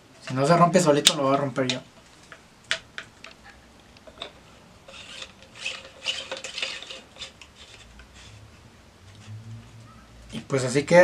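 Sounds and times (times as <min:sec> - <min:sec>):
plastic rubbing and scraping: 0:04.0 - 0:10.5.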